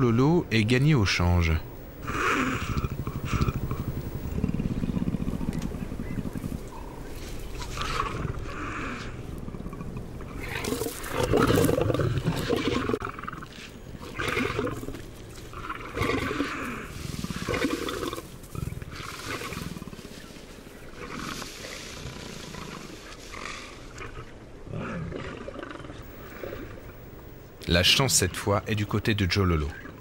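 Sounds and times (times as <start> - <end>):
big cats growling and snarling: 2.0 - 20.2, 20.9 - 27.0.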